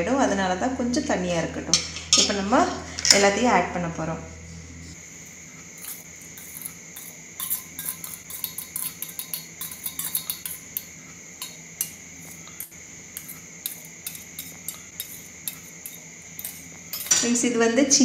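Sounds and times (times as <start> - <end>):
metal spoon scraping steel bowls: 1.8 - 3.3, 5.8 - 17.4.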